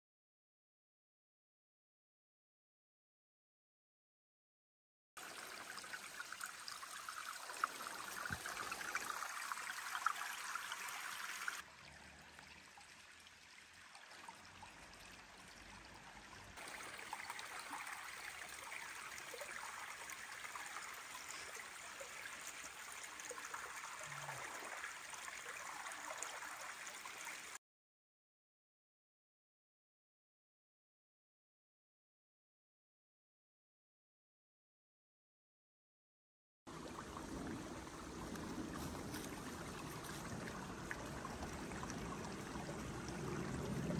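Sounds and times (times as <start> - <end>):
stream trickling over stones: 5.2 - 27.6, 36.7 - 43.9.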